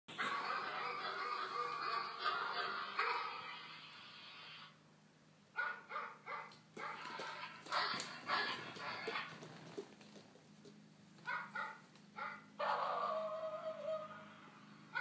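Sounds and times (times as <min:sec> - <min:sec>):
recorded dog barks through phone speaker: 0:00.2 - 0:03.4, 0:05.6 - 0:09.3, 0:11.3 - 0:14.2.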